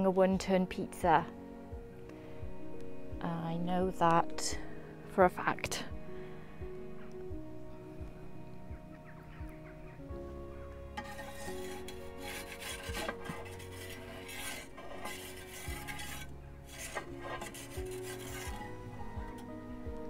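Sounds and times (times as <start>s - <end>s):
background music with held notes: 0.0s - 20.0s
metal peel scraping baking stone: 10.9s - 19.4s.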